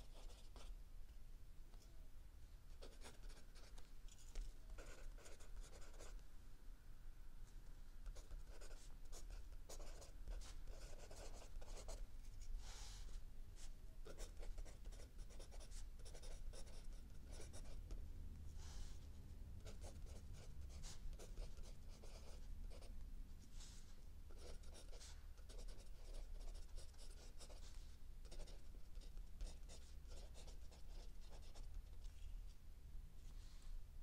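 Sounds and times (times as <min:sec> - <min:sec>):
pencil scratching on paper: 0:00.0 - 0:00.7, 0:02.8 - 0:03.8, 0:04.7 - 0:06.2, 0:08.1 - 0:12.0, 0:14.0 - 0:18.0, 0:19.6 - 0:22.9, 0:23.6 - 0:31.7.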